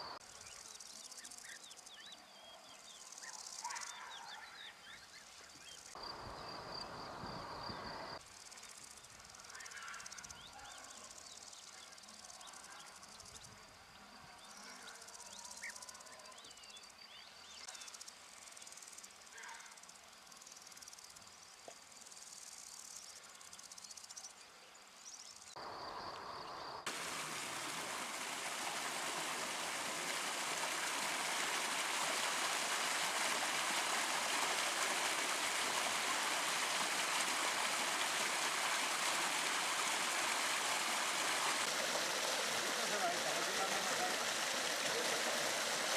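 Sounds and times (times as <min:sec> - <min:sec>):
stream running over rocks: 0:00.0 - 0:01.2, 0:25.6 - 0:45.9
insects trilling: 0:04.9 - 0:27.4.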